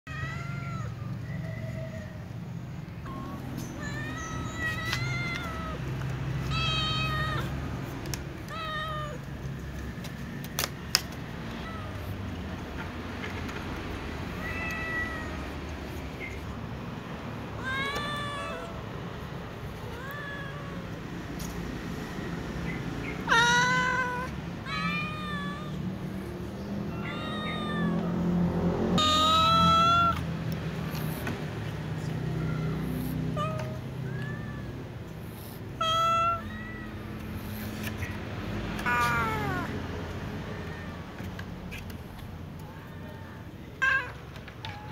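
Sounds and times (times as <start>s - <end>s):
cats meowing: 0.1s - 22.1s, 22.7s - 44.9s.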